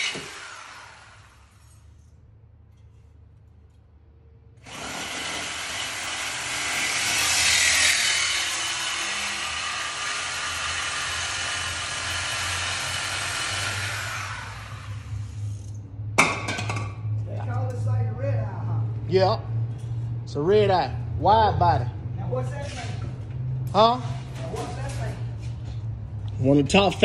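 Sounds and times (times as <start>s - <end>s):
power tool cutting metal pipe: 0.0s - 1.8s, 4.6s - 15.4s.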